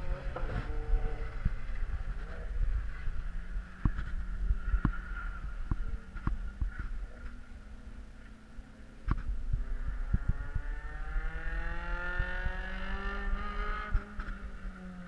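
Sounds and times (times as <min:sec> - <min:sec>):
wind on microphone: 0:00.0 - 0:07.2, 0:09.0 - 0:14.7
race car engine accelerating: 0:09.7 - 0:15.0.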